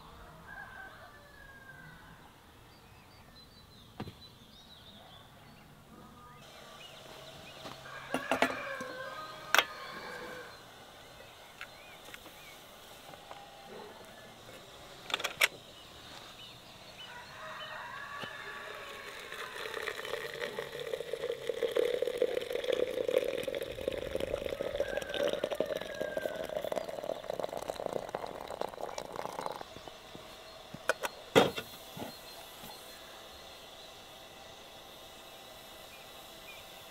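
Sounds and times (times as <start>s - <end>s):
water pouring into teapot: 18.6s - 29.8s.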